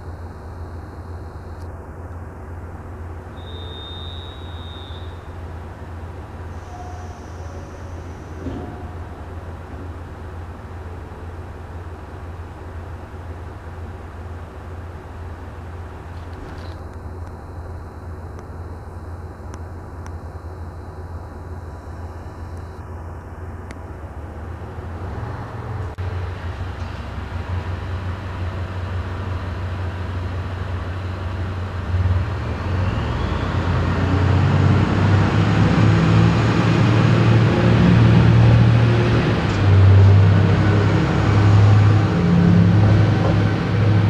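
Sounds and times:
train rumbling past: 5.0s - 16.6s, 24.1s - 44.0s.

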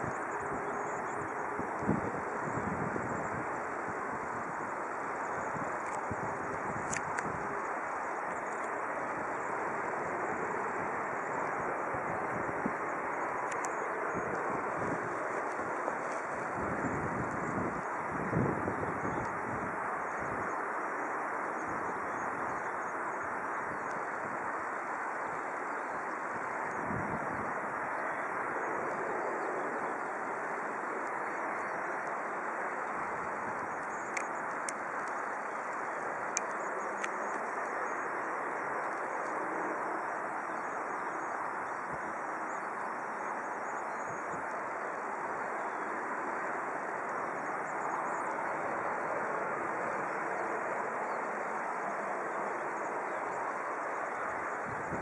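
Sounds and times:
distant jet engines running: 0.0s - 55.0s
faint clicks: 5.8s - 6.1s, 6.8s - 7.4s, 8.3s - 8.8s, 13.4s - 14.3s, 32.8s - 37.8s.

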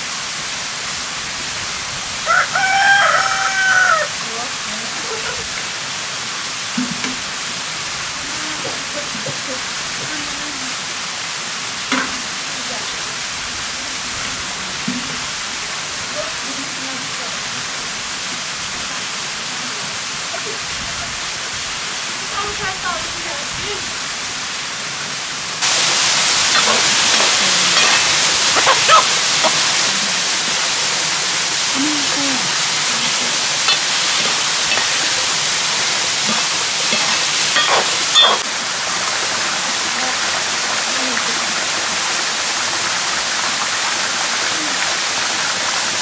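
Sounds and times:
stream rushing: 0.0s - 46.0s
metal ladle clinking in pan: 11.9s - 12.2s, 26.4s - 29.8s, 33.7s - 35.6s, 36.2s - 38.4s.

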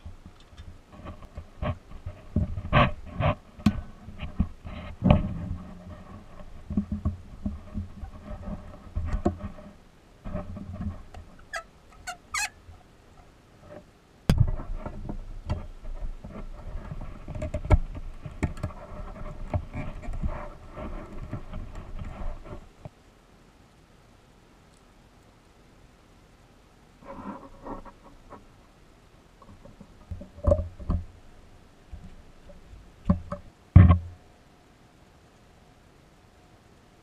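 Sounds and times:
short squeaks: 11.4s - 12.6s.

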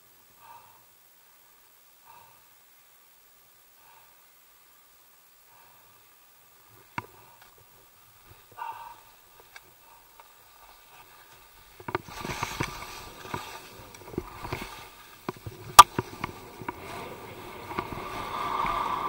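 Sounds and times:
skis hissing through snow: 6.6s - 19.0s.

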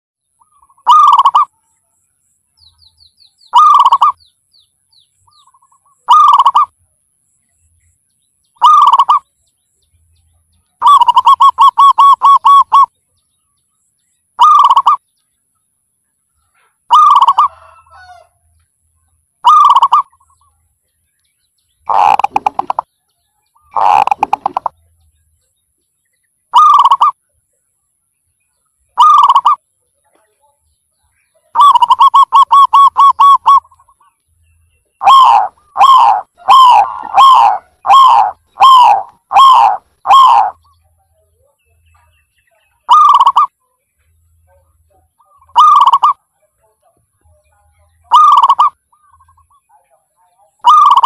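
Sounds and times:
small bird chirping: 0.3s - 18.2s, 19.0s - 51.0s
dove cooing: 0.8s - 1.5s, 3.6s - 4.2s, 6.1s - 6.7s, 8.6s - 9.2s, 10.8s - 12.9s, 14.4s - 15.0s, 16.9s - 18.1s, 19.4s - 20.1s, 21.9s - 22.8s, 23.7s - 24.7s, 26.6s - 27.1s, 29.0s - 29.6s, 31.6s - 33.8s, 35.0s - 40.6s, 42.9s - 43.5s, 45.5s - 46.2s, 48.1s - 48.8s, 50.6s - 51.0s.

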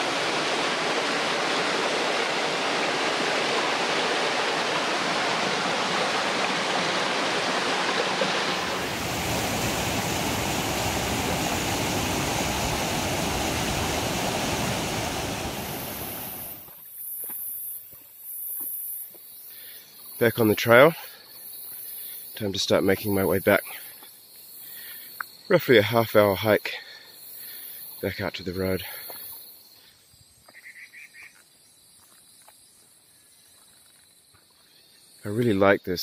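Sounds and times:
stream rushing water: 0.0s - 16.7s.

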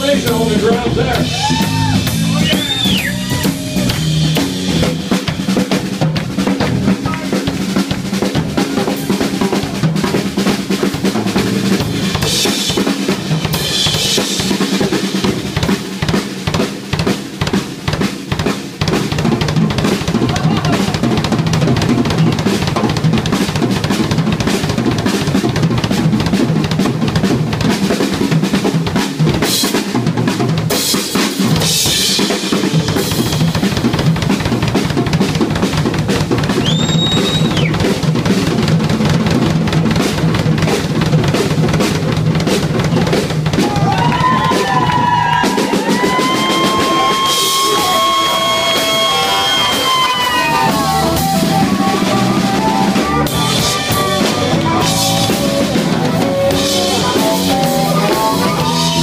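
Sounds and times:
drum kit solo: 0.0s - 59.0s.

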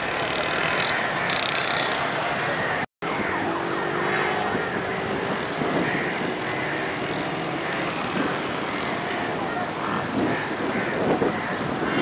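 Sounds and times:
vehicle running: 0.0s - 10.3s.

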